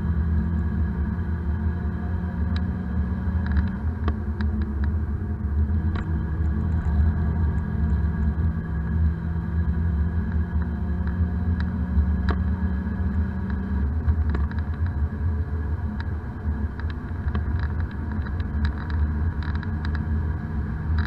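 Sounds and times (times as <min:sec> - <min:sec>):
car engine droning: 0:00.0 - 0:21.0
road noise inside car: 0:00.0 - 0:21.0
light clicks and rattles: 0:16.7 - 0:20.1.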